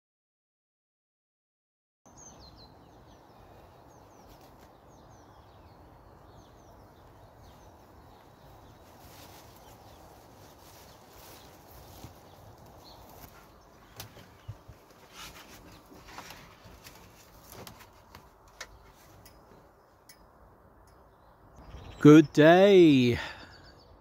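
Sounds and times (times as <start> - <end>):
birds chirping: 2.1 - 24.0
outdoor hush: 2.1 - 24.0
footsteps on grass: 7.0 - 18.3.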